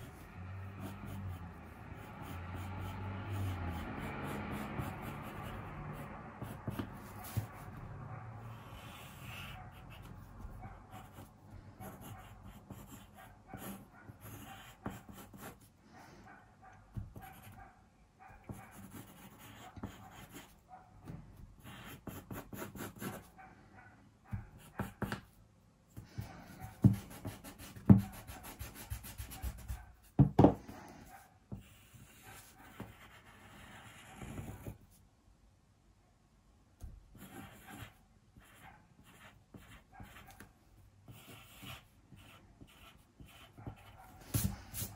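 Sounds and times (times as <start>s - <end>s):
pencil scratching on paper: 0.0s - 15.7s, 16.9s - 17.6s, 18.4s - 20.6s, 21.4s - 23.3s, 24.3s - 25.4s, 26.0s - 34.9s, 37.2s - 40.5s, 41.1s - 44.9s
knocks on desk: 30.2s - 30.6s.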